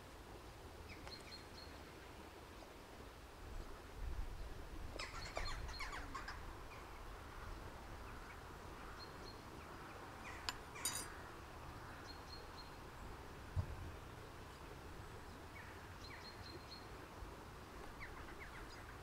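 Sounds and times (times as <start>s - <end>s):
spoon scraping and clicking: 10.5s - 11.1s.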